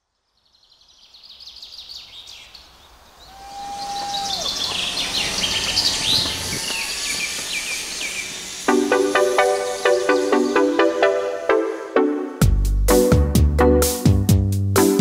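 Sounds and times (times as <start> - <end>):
outdoor background noise: 0.0 - 10.5
birds chirping: 0.4 - 11.4.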